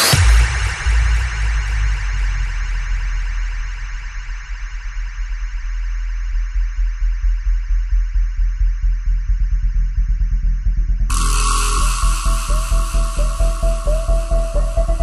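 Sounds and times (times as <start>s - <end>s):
fast bass pulse: 0.0s - 15.0s
electronic dance music: 11.1s - 15.0s
warbling synth line: 11.1s - 15.0s.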